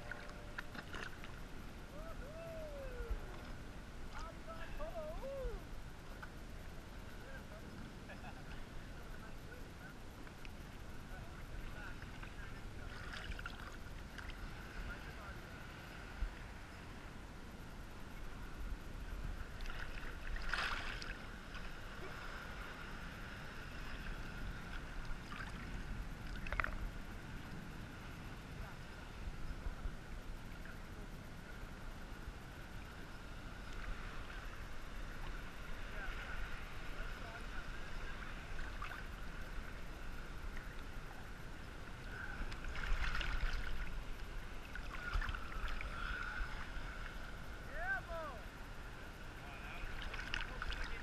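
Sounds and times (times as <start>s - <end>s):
seawater sloshing and lapping: 0.0s - 1.4s, 19.5s - 22.1s, 42.2s - 46.8s, 49.8s - 51.0s
sea water sloshing and lapping: 0.0s - 1.6s, 11.6s - 15.1s, 19.4s - 26.9s, 33.5s - 47.4s, 49.7s - 51.0s.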